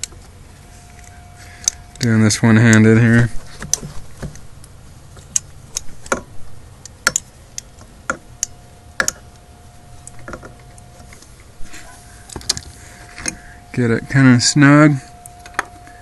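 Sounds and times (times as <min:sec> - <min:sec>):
metal parts clicking and tapping: 0:05.2 - 0:09.3.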